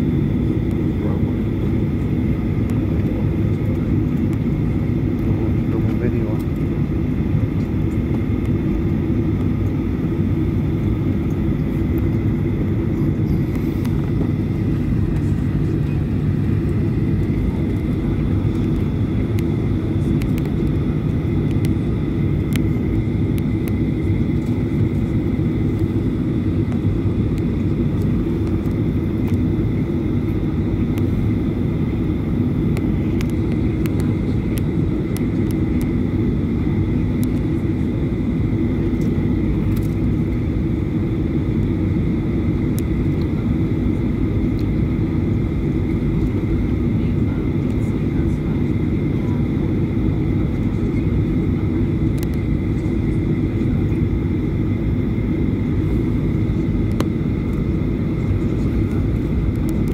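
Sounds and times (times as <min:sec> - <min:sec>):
jet engines low rumble: 0:00.0 - 0:59.9.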